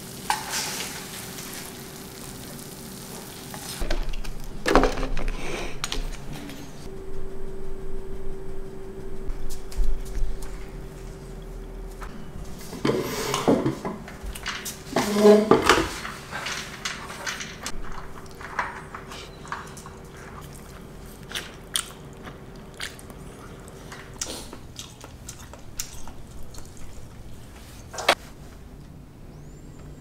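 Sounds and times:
faint steady hum: 0:03.9 - 0:14.9
chewing: 0:17.8 - 0:28.0.

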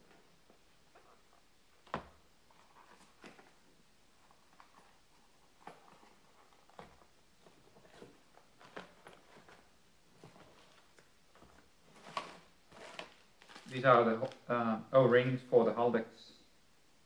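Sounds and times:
rustling packaging: 0:02.4 - 0:14.5.

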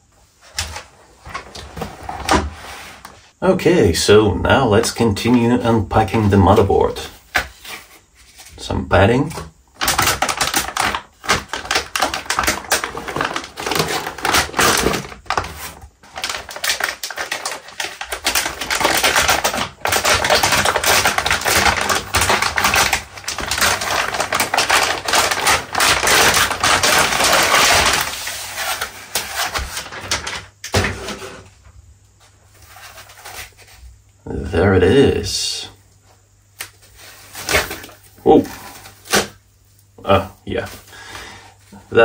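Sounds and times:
plastic bag crinkling: 0:09.8 - 0:30.5.

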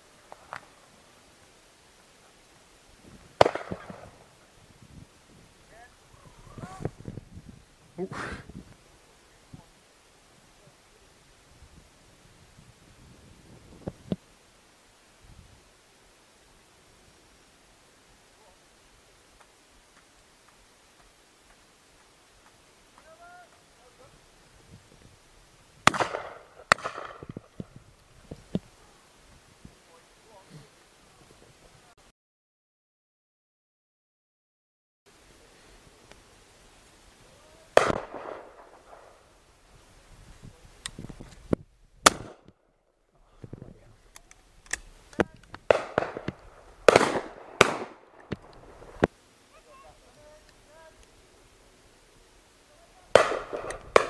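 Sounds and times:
shotgun firing with echo: 0:03.4 - 0:04.2, 0:25.8 - 0:27.3, 0:37.8 - 0:39.1, 0:42.0 - 0:42.4, 0:45.7 - 0:49.0, 0:53.1 - 0:54.0.

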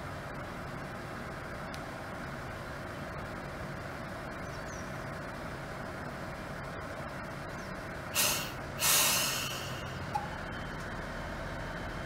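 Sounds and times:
diesel railcar engine running: 0:00.0 - 0:12.0
air brake hiss: 0:08.2 - 0:10.0.

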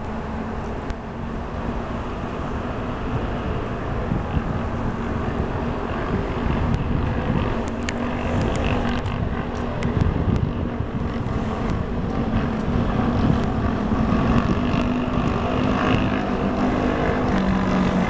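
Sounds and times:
faint engine hum: 0:00.0 - 0:18.0
wind buffeting microphone: 0:00.0 - 0:18.0.

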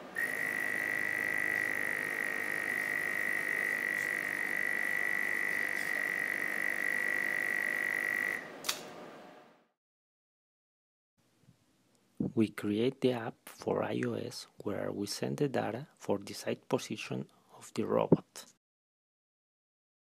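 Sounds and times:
high-pitched electrical whine: 0:00.0 - 0:08.6
short click: 0:08.6 - 0:08.9.

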